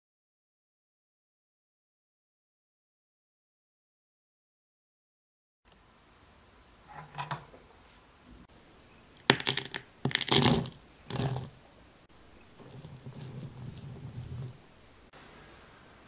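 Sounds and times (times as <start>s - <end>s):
powder pouring into plastic bowl: 9.3s - 11.6s.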